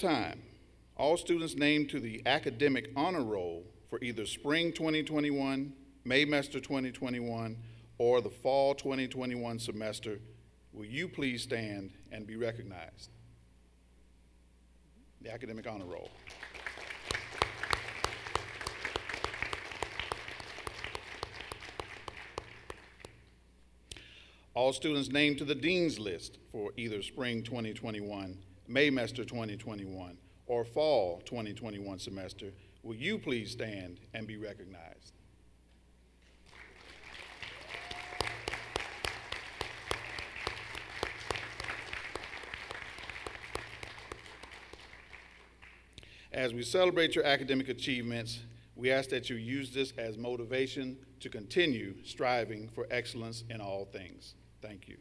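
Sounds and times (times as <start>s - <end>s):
close sharp hand claps: 16.0s - 23.3s, 36.4s - 46.0s
audience applause: 16.1s - 23.1s, 36.4s - 45.8s.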